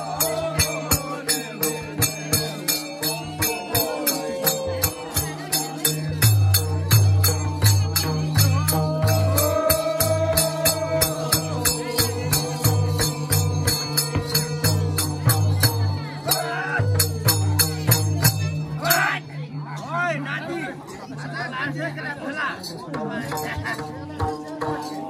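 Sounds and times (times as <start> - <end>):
low pulsing drum: 0.0 - 16.2, 16.8 - 18.8
jingling strikes: 0.0 - 19.9.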